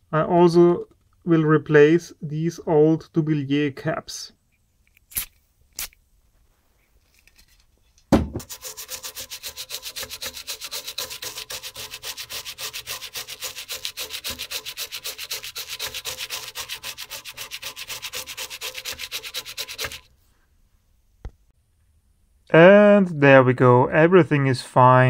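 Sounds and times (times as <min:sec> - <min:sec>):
brush knocking on board: 0:08.1 - 0:12.2
toothbrush scrubbing circuit board: 0:08.4 - 0:20.1.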